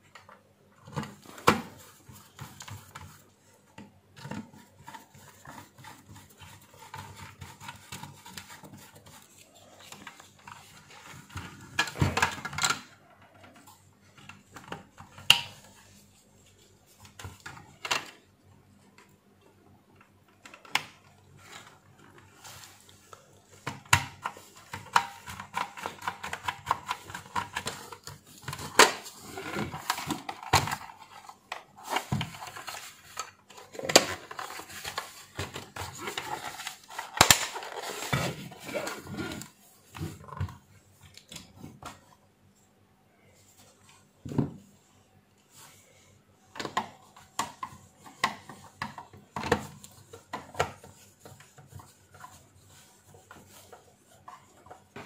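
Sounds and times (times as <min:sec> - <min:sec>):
plastic parts clicking and rattling: 0:09.8 - 0:15.8, 0:23.5 - 0:39.5.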